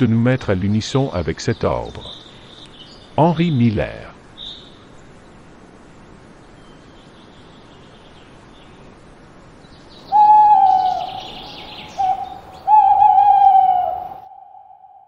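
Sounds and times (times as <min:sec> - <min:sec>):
faint small-bird chirps: 0:04.4 - 0:04.9
owl hooting: 0:10.0 - 0:15.0.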